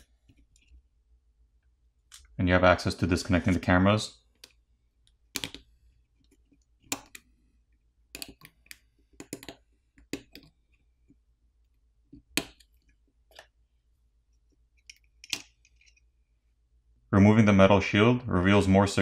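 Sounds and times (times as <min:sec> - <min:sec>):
plastic pick popping connectors: 0:04.4 - 0:05.7, 0:08.1 - 0:10.5.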